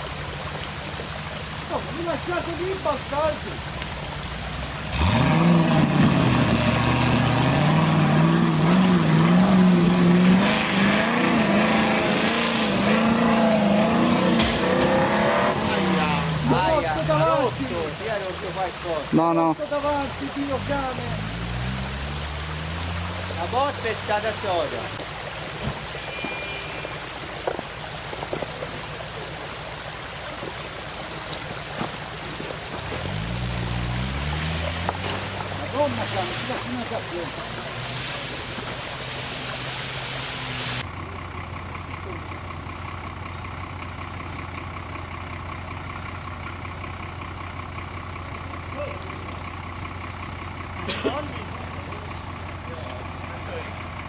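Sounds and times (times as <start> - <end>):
engine idling and revving: 0.0 - 26.2, 27.4 - 54.0
truck engine revving hard: 4.7 - 18.0, 20.4 - 24.6, 32.9 - 40.9
tyres scrabbling on loose stones: 27.4 - 28.9.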